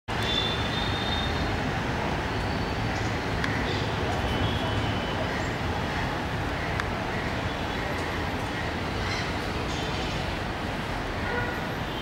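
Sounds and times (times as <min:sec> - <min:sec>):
distant city traffic hum: 0:00.1 - 0:12.0.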